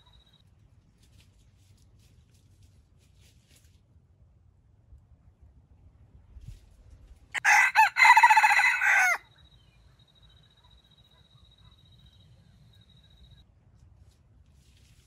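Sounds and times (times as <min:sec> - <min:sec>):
rooster crowing: 0:07.4 - 0:09.3.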